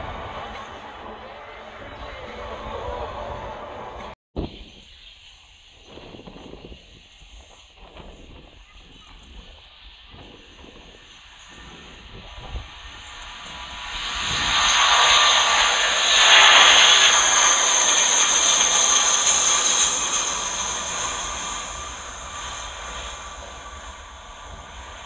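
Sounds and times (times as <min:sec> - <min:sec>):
jet engine roar: 0:00.0 - 0:04.2, 0:05.9 - 0:25.0.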